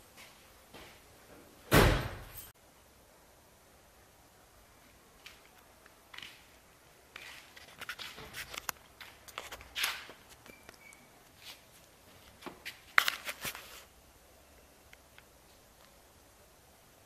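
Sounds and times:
footsteps on concrete: 0:06.1 - 0:10.4
rustling handling noise: 0:07.1 - 0:14.0.

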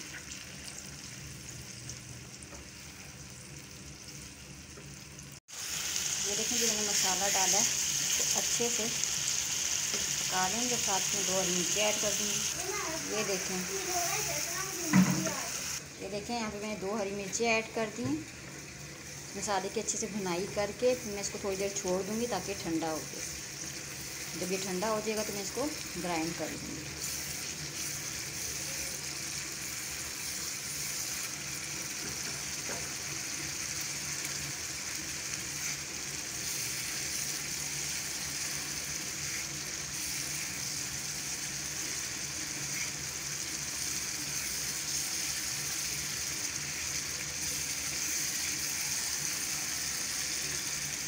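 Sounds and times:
masala sizzling in hot oil: 0:00.0 - 0:51.0.

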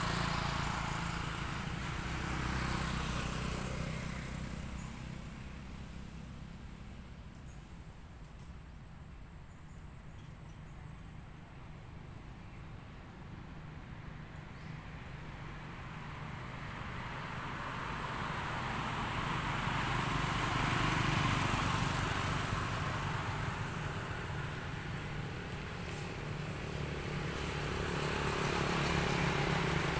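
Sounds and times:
motor vehicle engine running: 0:15.4 - 0:29.9.

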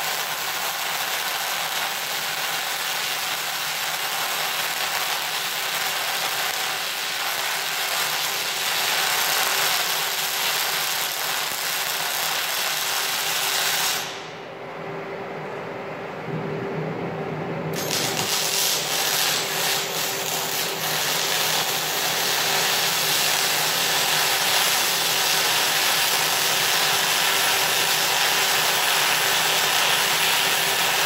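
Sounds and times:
welding arc crackling: 0:00.0 - 0:14.3, 0:17.7 - 0:31.0
faint low hum: 0:14.2 - 0:18.4.

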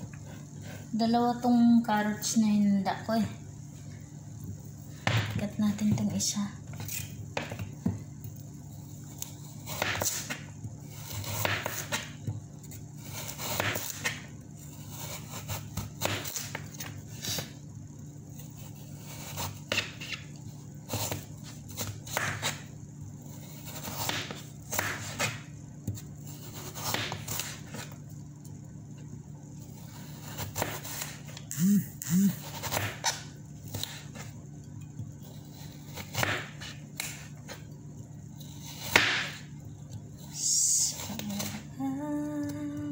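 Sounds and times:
steady low hum: 0:00.0 - 0:42.9
knife slicing carrots on board: 0:09.6 - 0:12.2, 0:13.0 - 0:14.2, 0:30.2 - 0:31.4.

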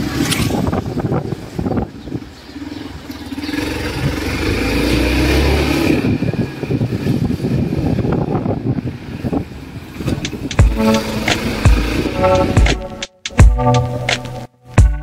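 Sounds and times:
road hum: 0:02.2 - 0:12.6.

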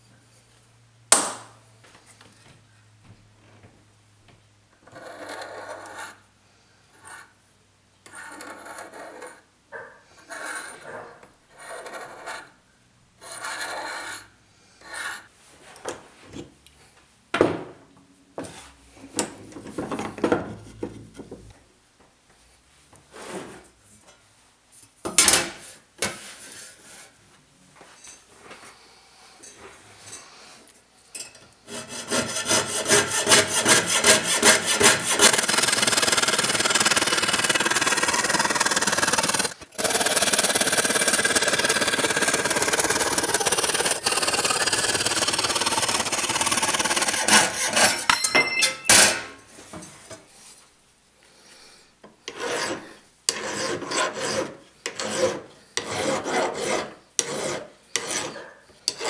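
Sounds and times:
dividers scratching brass: 0:46.6 - 0:49.3.

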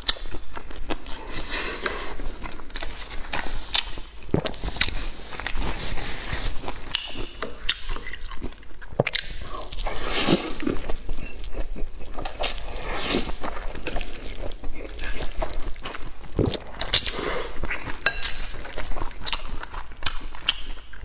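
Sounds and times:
person chewing: 0:00.0 - 0:21.0
wet mouth clicks: 0:06.9 - 0:09.9, 0:19.3 - 0:21.0
slurping noodles: 0:09.4 - 0:11.0, 0:12.3 - 0:15.6.

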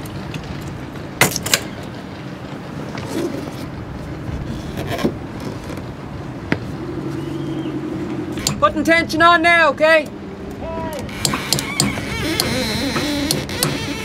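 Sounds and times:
steady low hum: 0:06.0 - 0:11.1
metal winch clicks and knocks: 0:11.1 - 0:14.0.

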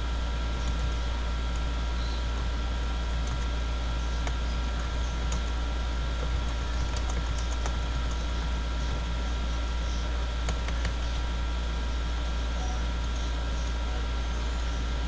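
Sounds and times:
steady low hum: 0:00.0 - 0:15.0
keyboard key clicks: 0:10.4 - 0:11.0.

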